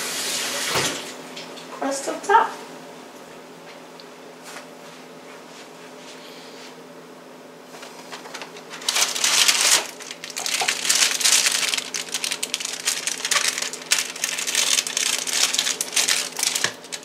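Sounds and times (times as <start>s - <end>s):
plastic wrapper crinkling: 8.1s - 17.0s.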